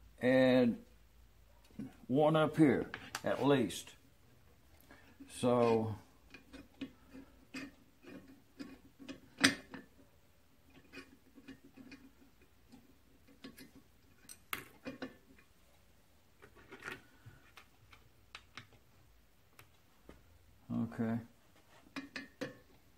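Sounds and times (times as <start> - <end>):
small metal parts clicking and tapping: 10.7 - 15.5.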